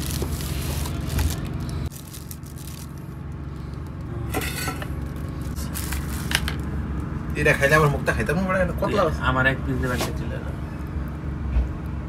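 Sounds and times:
steel dishes clinking and scraping: 0:04.3 - 0:04.9.

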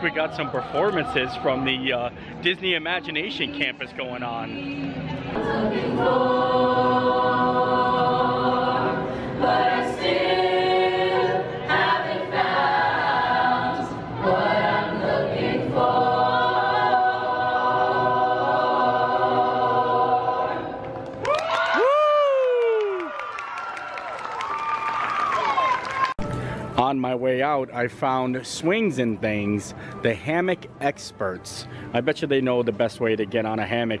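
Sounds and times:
choir singing held chords: 0:00.0 - 0:21.1
singers breathing: 0:02.1 - 0:02.4, 0:09.0 - 0:09.4, 0:29.7 - 0:30.0, 0:31.6 - 0:32.0.

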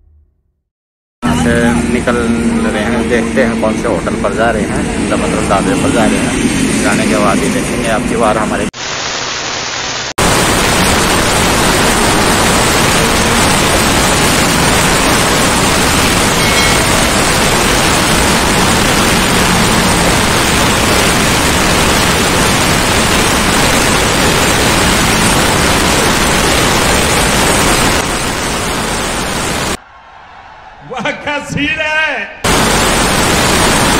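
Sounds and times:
static glitch: 0:01.2 - 0:29.8, 0:32.4 - 0:33.9.

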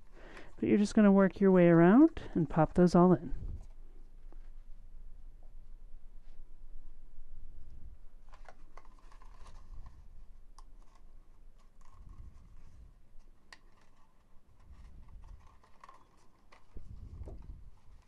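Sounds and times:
cardstock paper crackling and clicking: 0:08.2 - 0:18.0.

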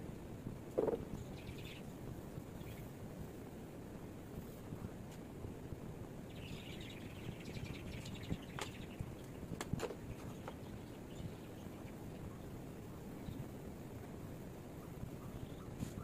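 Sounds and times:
steady low background noise: 0:00.0 - 0:16.0
bird chirps: 0:00.8 - 0:01.9, 0:06.3 - 0:12.5, 0:14.8 - 0:16.0.

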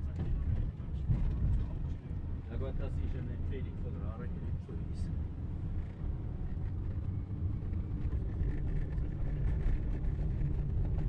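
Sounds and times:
bus engine and tyres rumbling: 0:00.0 - 0:11.0.

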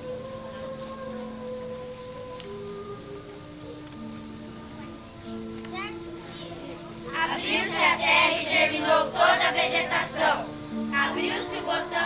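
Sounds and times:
held accompanying notes: 0:00.0 - 0:12.0
children singing in unison: 0:06.9 - 0:12.0.

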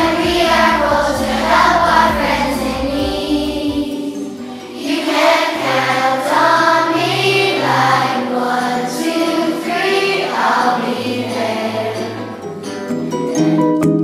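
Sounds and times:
low accompaniment notes: 0:00.0 - 0:08.2
children's choir singing: 0:00.0 - 0:13.8.

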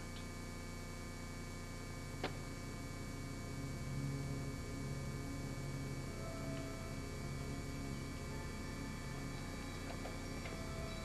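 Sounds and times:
mains hum: 0:00.0 - 0:11.0
soft background music: 0:02.2 - 0:11.0.

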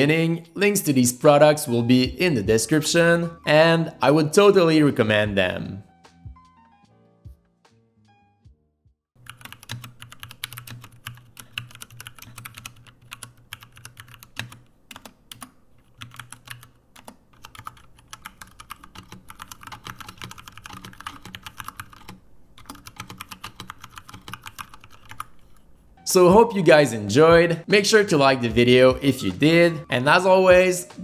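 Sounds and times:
typing on mechanical keyboard: 0:09.2 - 0:25.5.

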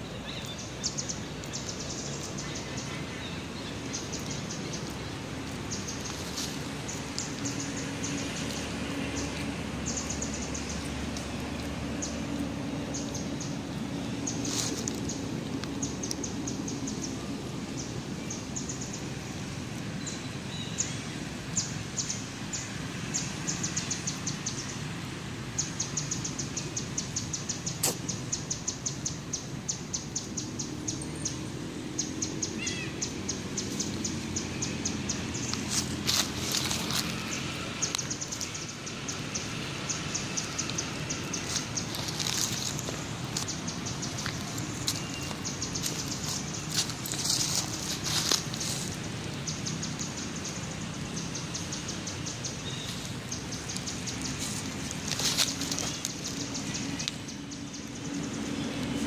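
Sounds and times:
steady background hiss: 0:00.0 - 0:59.0.

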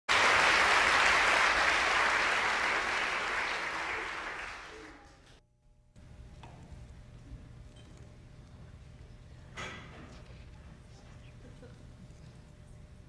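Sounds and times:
audience applauding: 0:00.1 - 0:05.4
faint low hum: 0:00.2 - 0:13.0.

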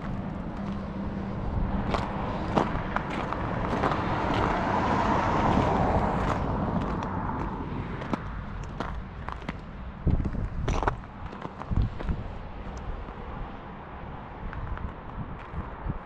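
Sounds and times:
road vehicle passing: 0:00.0 - 0:16.0
steady low rumble: 0:00.0 - 0:16.0.

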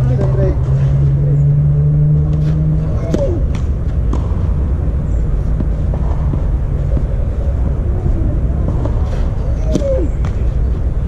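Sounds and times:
steady low rumble: 0:00.0 - 0:11.0
tennis ball struck by rackets: 0:03.0 - 0:04.7, 0:05.4 - 0:07.8, 0:08.6 - 0:10.6.

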